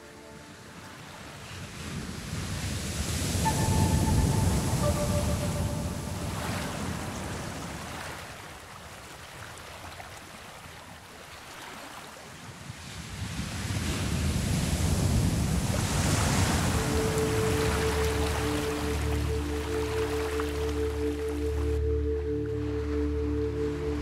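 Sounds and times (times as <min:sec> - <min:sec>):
choppy waves: 0:00.0 - 0:24.0
underwater water noise: 0:15.6 - 0:24.0.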